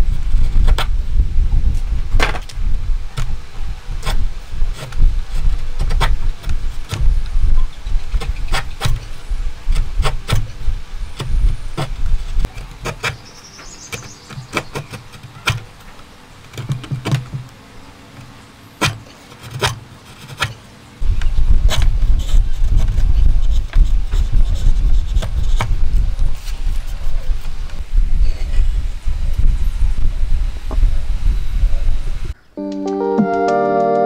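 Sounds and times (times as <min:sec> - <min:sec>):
chisel paring wood: 0:13.9 - 0:15.6, 0:18.8 - 0:20.5.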